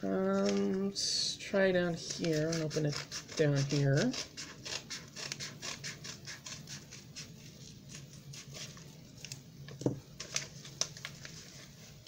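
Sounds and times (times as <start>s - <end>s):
cardboard and tape rustling: 0.1s - 0.9s, 7.4s - 12.0s.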